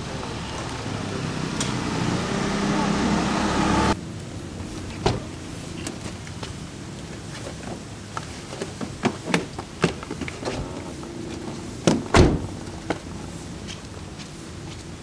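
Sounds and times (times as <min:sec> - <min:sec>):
car door shutting: 0:05.0 - 0:05.3, 0:11.5 - 0:13.0.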